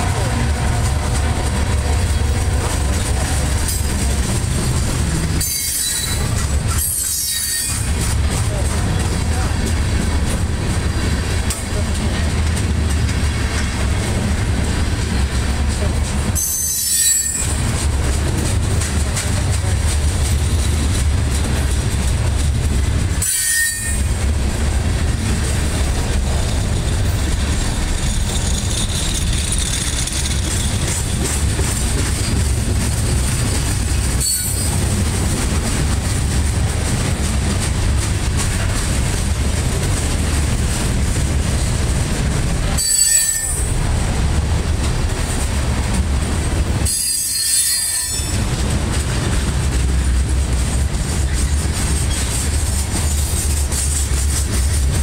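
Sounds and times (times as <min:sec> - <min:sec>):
train wheels rumbling on rail: 0:00.0 - 0:55.0
high wheel squeal: 0:05.4 - 0:07.9, 0:16.4 - 0:17.6, 0:23.2 - 0:24.1, 0:34.2 - 0:34.8, 0:42.8 - 0:43.7, 0:46.8 - 0:48.4.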